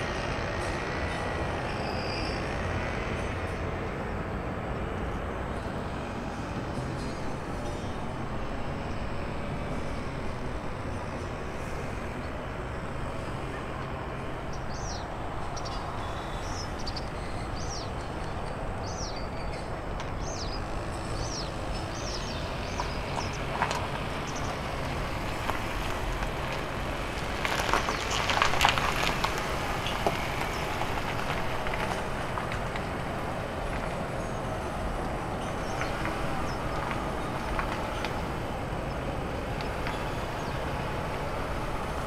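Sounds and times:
distant aircraft noise: 0.0 - 42.0
bird chirping: 14.5 - 23.5.

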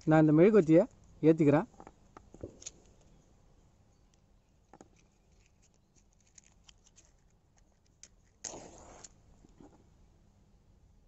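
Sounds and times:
matchstick struck and flaring: 8.0 - 9.2.

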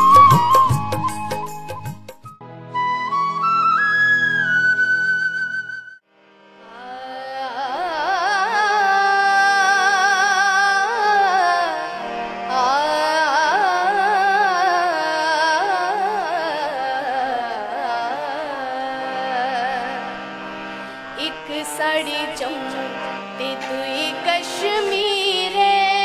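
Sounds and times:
harmonium sustained notes: 2.4 - 26.0
woman singing: 6.7 - 20.2, 21.2 - 26.0.

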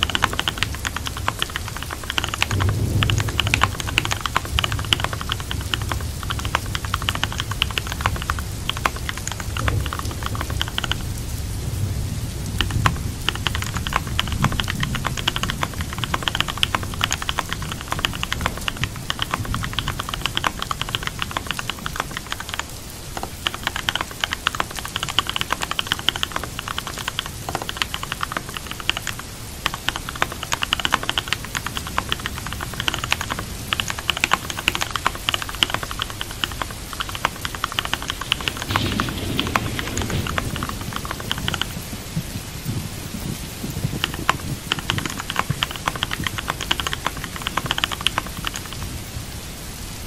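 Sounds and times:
fast typing on keyboard: 0.0 - 11.4, 12.4 - 41.8, 43.2 - 49.0
steady rain: 0.0 - 50.0
low rumble: 38.4 - 43.4.

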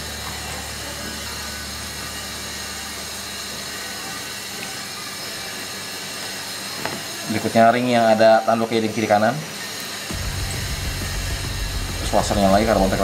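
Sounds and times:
low hum: 10.1 - 13.0.

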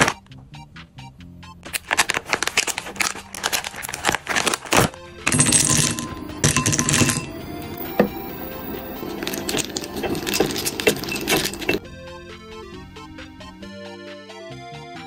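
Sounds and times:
plastic packets crackling: 1.6 - 5.0
chocolate discs clattering into glass bowl: 5.3 - 11.8.

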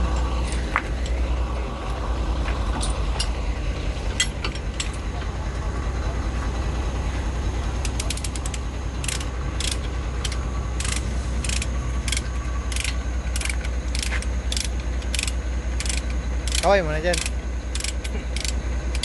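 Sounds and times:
low engine hum: 0.0 - 19.0
ratchet binder clicking: 7.8 - 19.0.

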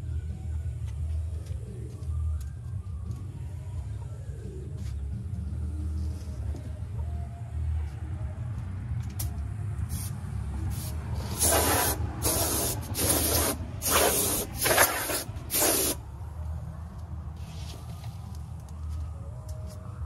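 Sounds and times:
low steady rumble: 0.0 - 20.0
compressed air blasts: 9.9 - 16.0.

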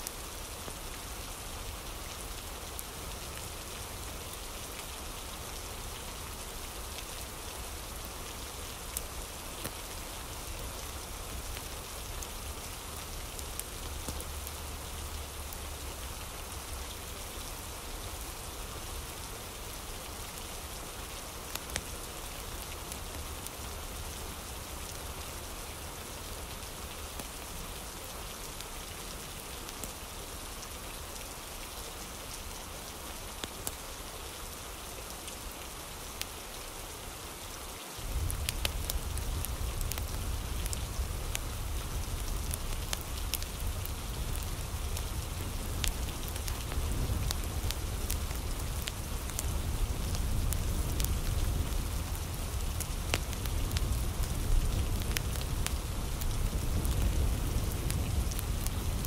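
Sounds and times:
rain hiss: 0.0 - 59.0
rain drop ticks: 8.8 - 17.5, 20.0 - 30.0, 38.0 - 59.0.

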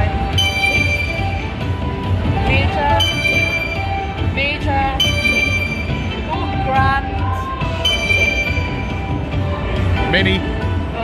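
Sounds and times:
slot machine electronic music: 0.0 - 10.4
sustained bell-like chimes: 0.3 - 1.9, 3.0 - 4.3, 5.0 - 6.4, 7.8 - 9.3.

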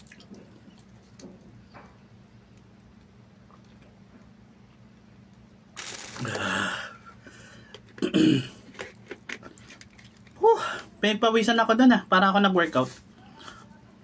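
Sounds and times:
man exhaling loudly: 6.2 - 7.5
man clearing throat: 8.0 - 8.7.

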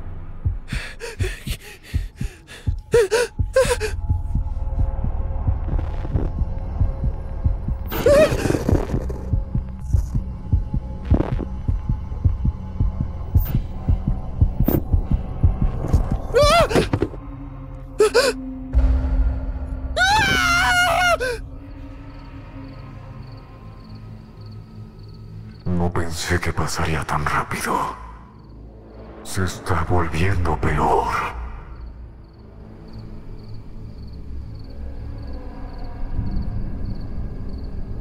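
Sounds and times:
low hum: 0.0 - 16.4
heartbeat throbbing: 0.3 - 17.2
woman gasping for breath: 0.7 - 4.0.

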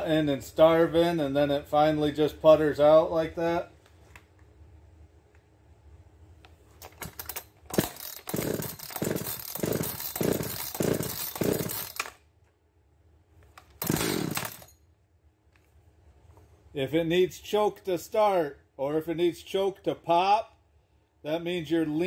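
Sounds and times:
chainsaw recoil starter clicks: 6.8 - 12.2, 13.6 - 14.7
chainsaw cranking strokes: 7.0 - 12.2, 13.8 - 14.7.

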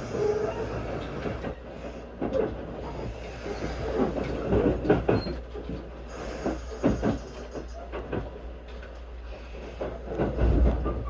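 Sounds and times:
train interior rumble: 0.0 - 11.0
wheels clacking on track: 0.0 - 11.0.

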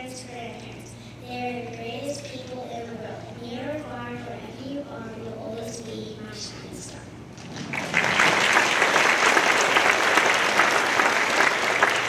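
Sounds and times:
audience applauding: 7.5 - 12.0.

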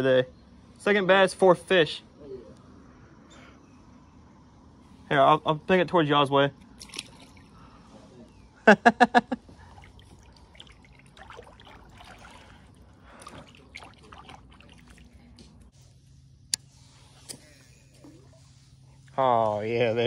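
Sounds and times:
water trickling and dripping: 9.6 - 15.7.

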